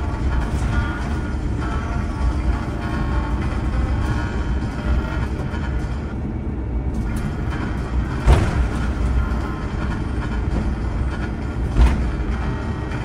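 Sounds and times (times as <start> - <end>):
wheels and engines rumbling: 0.0 - 13.0
thump: 8.2 - 8.9, 11.8 - 12.1.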